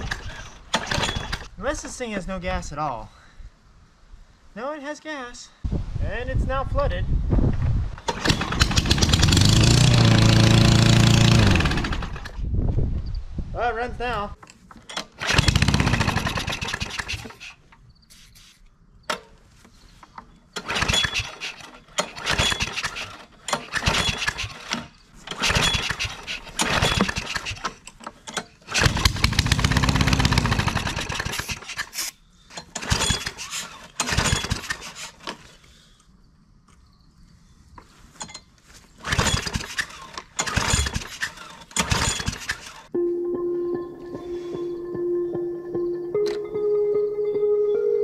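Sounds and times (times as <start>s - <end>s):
lawn mower engine sputtering: 0.0s - 1.5s, 8.0s - 12.4s, 14.7s - 17.6s, 20.2s - 35.4s, 39.0s - 42.9s.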